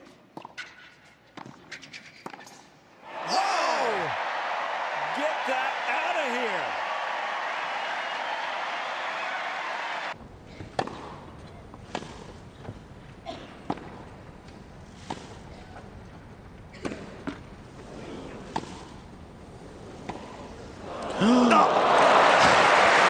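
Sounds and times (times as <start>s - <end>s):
loud crowd noise: 3.0s - 10.2s, 20.8s - 23.0s.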